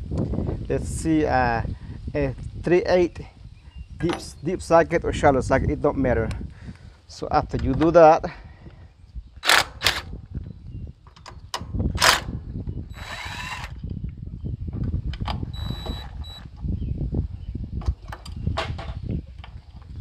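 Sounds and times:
metal clicks and knocks: 7.5 - 8.0
short whirring bursts: 12.9 - 13.8.

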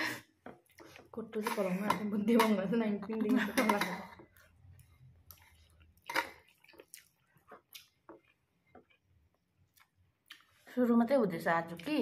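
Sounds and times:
person chewing and eating: 4.1 - 10.6
wet mouth clicks and smacks: 5.2 - 9.0, 9.7 - 10.5.

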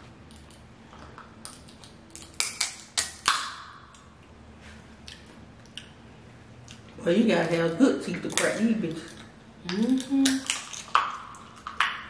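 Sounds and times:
crab shells cracking: 0.3 - 4.0, 8.2 - 12.0.

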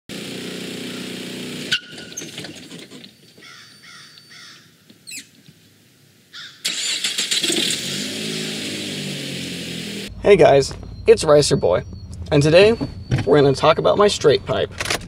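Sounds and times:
loud car exhaust: 0.1 - 2.1, 7.4 - 14.8
crows cawing: 3.4 - 4.8, 6.3 - 6.7
steady low hum: 10.1 - 15.0.

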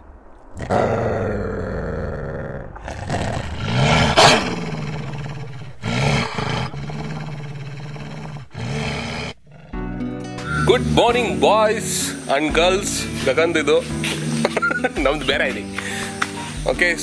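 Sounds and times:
deep rough animal roaring: 0.5 - 11.9.

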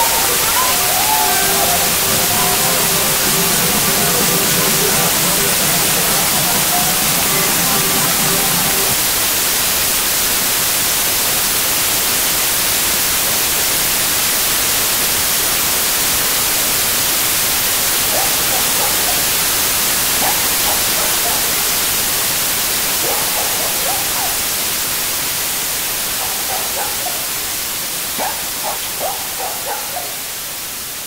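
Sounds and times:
faint voices: 0.0 - 9.0
static hiss: 0.0 - 31.0.

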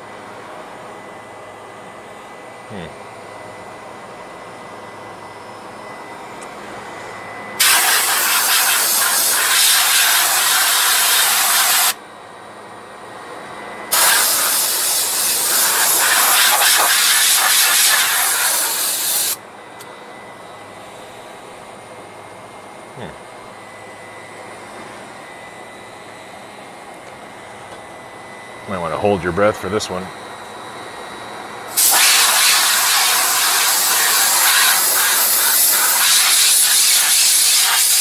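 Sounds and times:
condensing unit fan running: 0.0 - 38.0
compressed gas hissing: 7.6 - 12.0, 13.9 - 19.4, 31.7 - 38.0.

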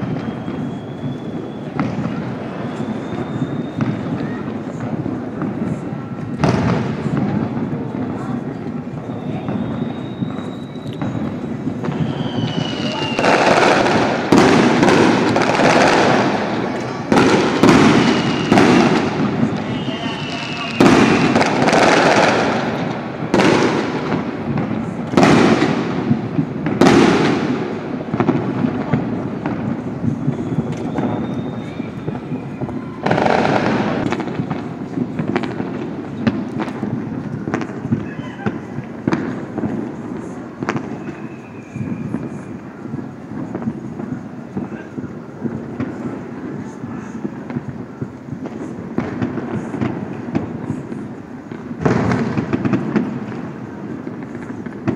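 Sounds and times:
faint falling whistle: 0.0 - 4.4, 9.0 - 11.3, 11.9 - 13.4, 19.6 - 21.4, 30.3 - 33.1, 40.9 - 42.6
fireworks bangs and crackles: 0.0 - 54.9.

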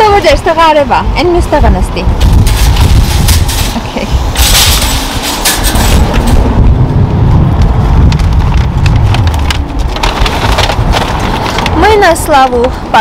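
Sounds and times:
wind buffeting microphone: 0.0 - 13.0
grocery bags rustling: 8.0 - 13.0.

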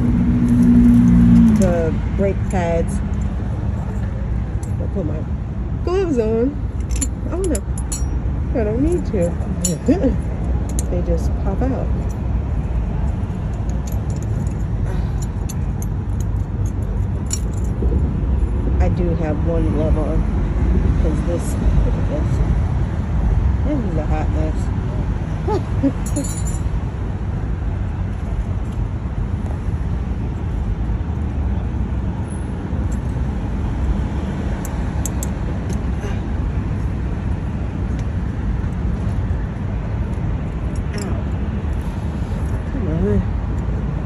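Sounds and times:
steady low rumble: 0.0 - 44.0
metallic clicks of brake clips: 6.8 - 8.1, 9.2 - 10.9, 13.0 - 18.0, 34.6 - 35.9.

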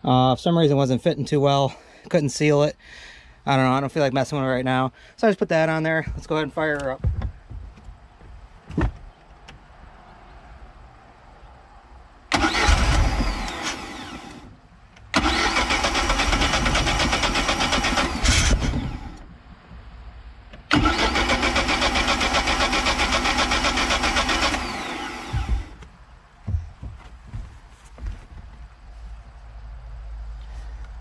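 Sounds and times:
engine starter cranking: 12.3 - 14.5, 15.1 - 19.2, 20.7 - 25.8.

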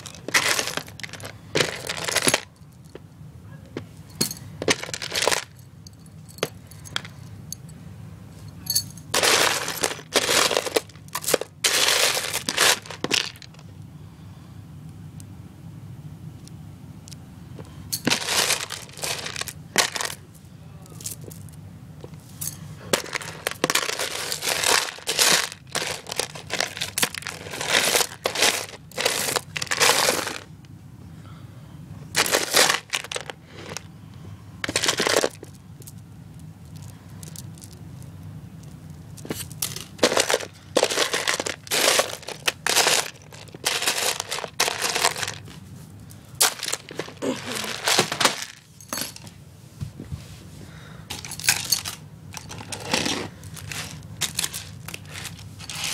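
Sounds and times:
plastic beads rattling: 0.0 - 2.8, 4.2 - 5.6, 8.7 - 13.6, 17.9 - 20.3, 22.4 - 30.5, 32.2 - 33.9, 34.6 - 49.2, 51.1 - 55.9.

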